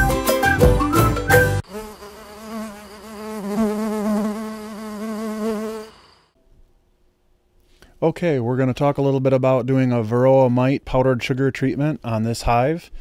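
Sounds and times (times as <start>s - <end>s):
music: 0.0s - 1.6s
honeybees buzzing: 1.6s - 6.2s.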